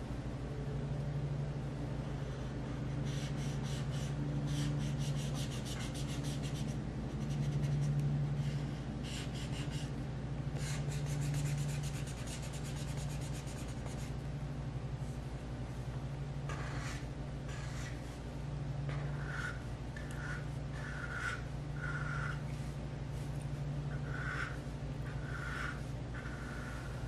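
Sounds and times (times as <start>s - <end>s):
marker scribbling on paper: 3.0s - 8.0s, 9.0s - 9.9s, 10.6s - 14.2s, 16.5s - 18.2s.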